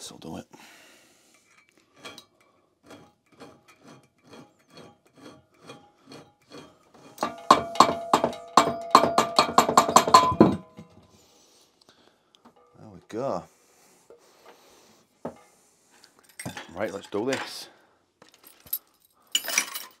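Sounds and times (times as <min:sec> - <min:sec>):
metal file rasping on metal: 0:01.3 - 0:08.2.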